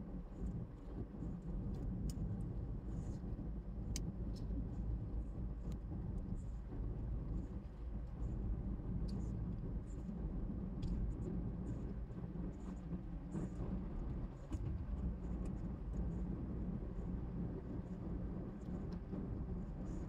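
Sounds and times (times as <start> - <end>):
car engine and tyres rumbling: 0.0 - 20.0.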